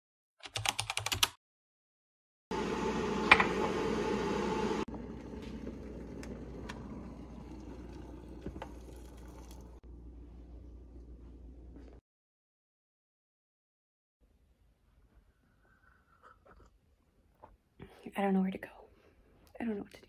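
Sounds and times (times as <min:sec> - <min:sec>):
electric kettle boiling water: 0:02.5 - 0:09.8.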